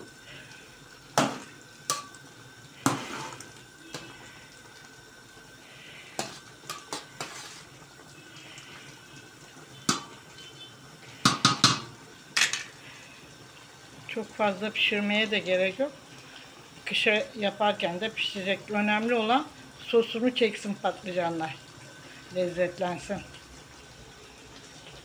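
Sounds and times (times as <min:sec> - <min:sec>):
spoon stirring food in a pot: 0:06.2 - 0:07.8
spoon knocking against a metal pot: 0:11.2 - 0:11.9.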